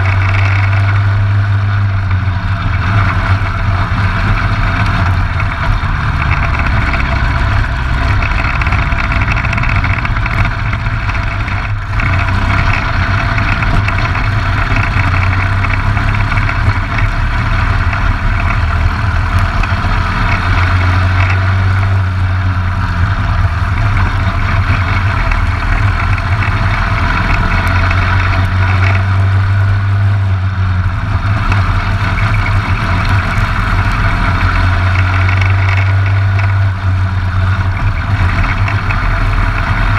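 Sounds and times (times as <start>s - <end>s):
kart engine running: 0.0s - 39.9s.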